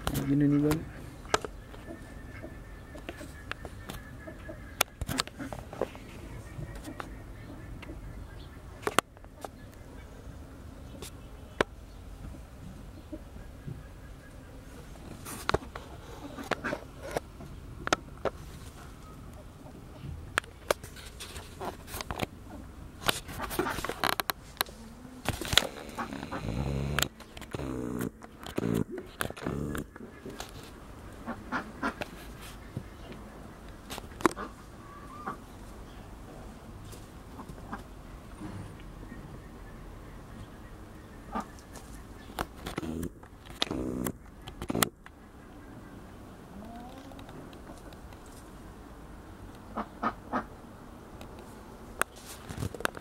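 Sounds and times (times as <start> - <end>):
short pitched animal calls: 25.6 - 30.1.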